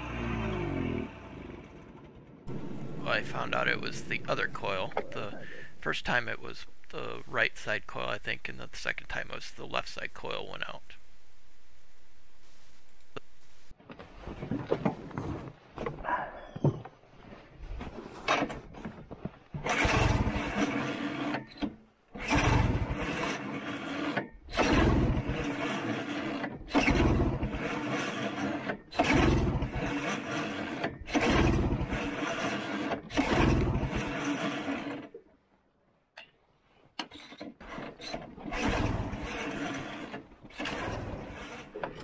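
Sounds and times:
engine being pull-started: 0.0s - 7.2s, 19.6s - 35.2s, 37.0s - 42.0s.

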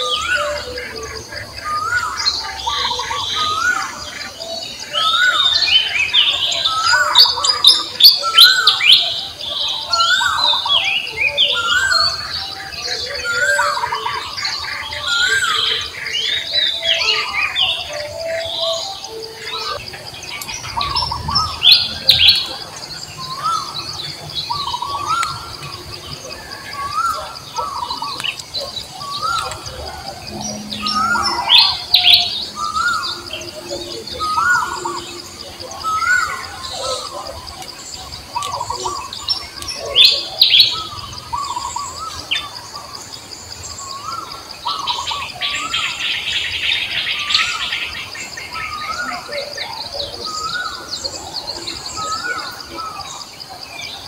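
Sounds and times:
birds chirping and calling: 0.0s - 54.0s
steady high-pitched whine: 0.0s - 54.0s.

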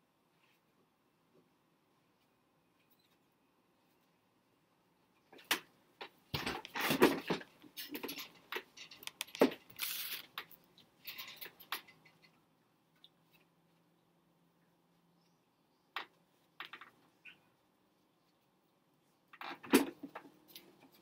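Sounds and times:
device handling clicks and knocks: 8.0s - 10.5s.

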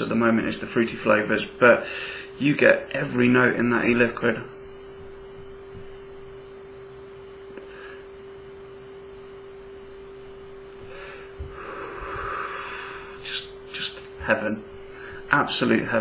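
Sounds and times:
steady electrical hum: 0.0s - 16.0s
person vaping breaths: 1.8s - 2.4s, 7.6s - 8.2s, 10.8s - 13.2s, 14.9s - 15.3s.

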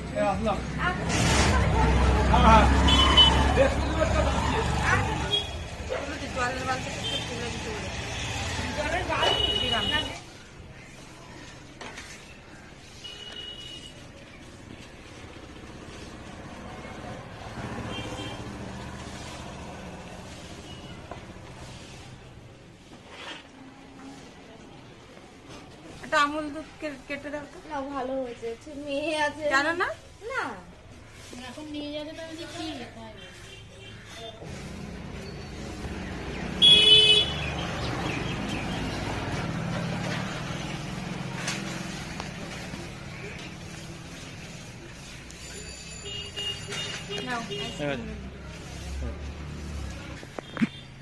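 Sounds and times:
vehicle engine passing: 0.0s - 9.2s, 15.2s - 22.3s, 34.4s - 45.1s, 47.5s - 50.4s
vehicle horn toot: 2.8s - 3.6s, 9.2s - 10.2s, 36.6s - 37.4s, 46.0s - 48.0s
vehicle engine humming: 34.4s - 51.0s.

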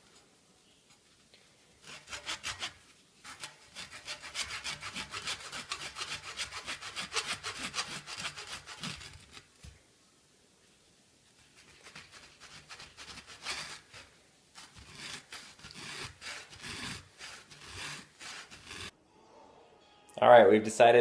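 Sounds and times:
knife sawing through yarn: 1.8s - 9.5s, 11.4s - 18.9s.

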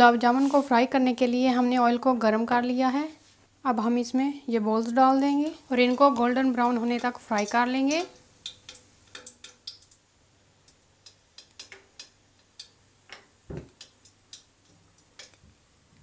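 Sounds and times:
hot oil popping and crackling: 5.4s - 16.0s.

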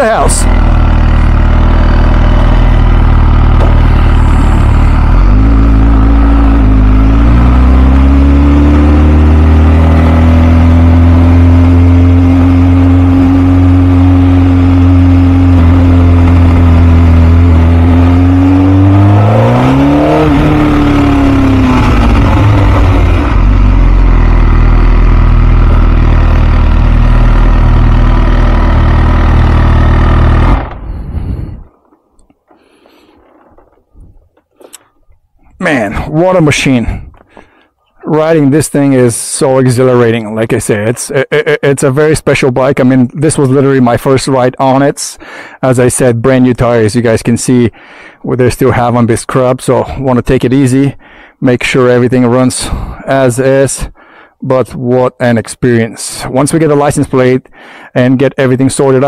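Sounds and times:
motorcycle engine running: 0.0s - 37.6s.

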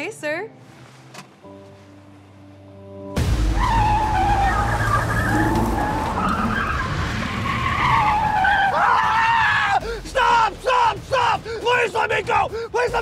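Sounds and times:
car tyres squealing: 3.4s - 9.7s.

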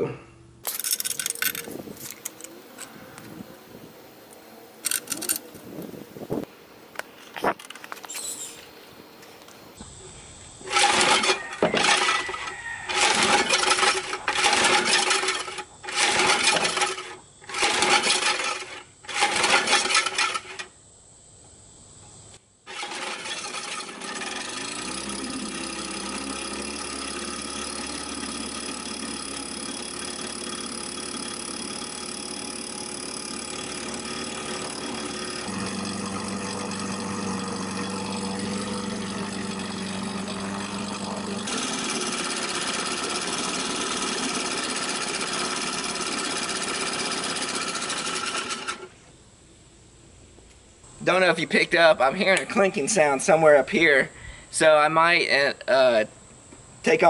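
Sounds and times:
starter rope pulls: 0.6s - 8.5s, 10.6s - 20.7s, 22.7s - 48.9s
outboard motor running: 0.6s - 9.8s, 12.9s - 16.9s, 22.7s - 48.9s
propeller churning water: 33.1s - 48.7s.

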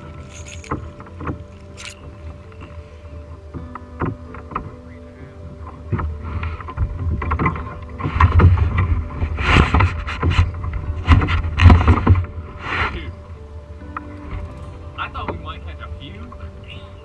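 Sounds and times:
water lapping against kayak hull: 0.0s - 13.0s
wind noise on microphone: 0.0s - 17.0s.

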